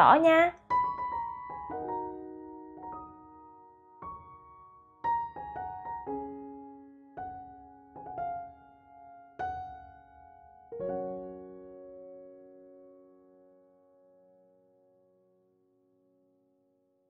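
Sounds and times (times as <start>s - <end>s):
piano music: 0.0s - 16.3s.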